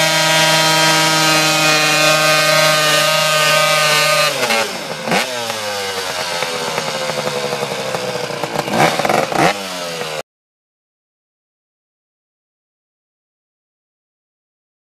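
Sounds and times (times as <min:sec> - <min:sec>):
dirt bike engine revving: 0:00.0 - 0:10.2.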